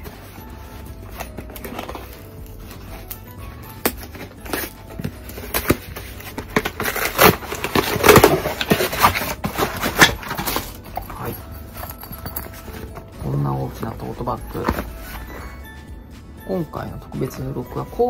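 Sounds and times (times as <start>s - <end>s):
bag rustling and scraping cardboard: 4.0s - 13.1s.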